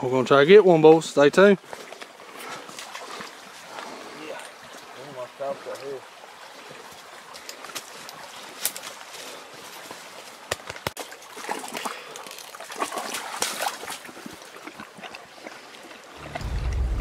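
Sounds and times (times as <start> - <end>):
rustling in leaves and rocks: 5.6 - 17.0.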